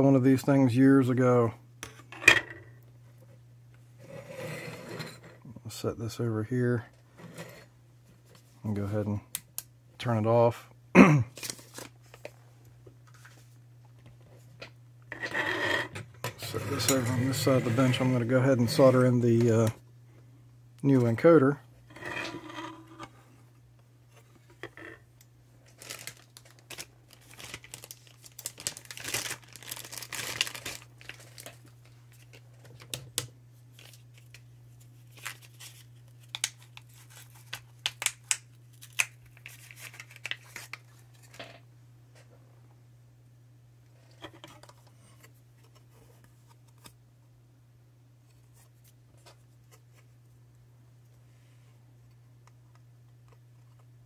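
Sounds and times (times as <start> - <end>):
low steady hum: 0.0 - 54.0
plastic packaging crinkling and tearing: 11.3 - 12.3, 25.6 - 33.0, 33.7 - 41.4.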